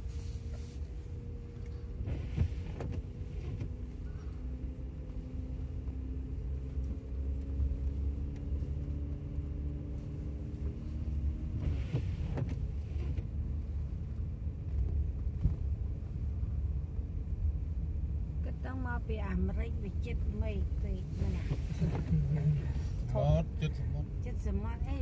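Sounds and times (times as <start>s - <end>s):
car engine and tyre rumble: 0.0s - 25.0s.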